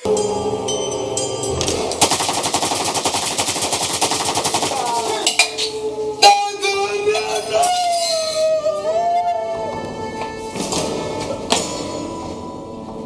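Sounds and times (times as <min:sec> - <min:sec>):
background music: 0:00.0 - 0:13.0
automatic gunfire: 0:02.0 - 0:05.2.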